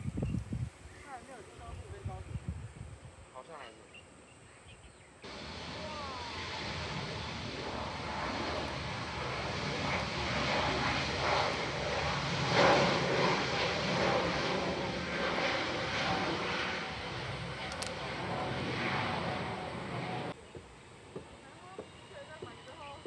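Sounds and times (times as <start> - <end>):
jet engine on runway: 5.2 - 23.0.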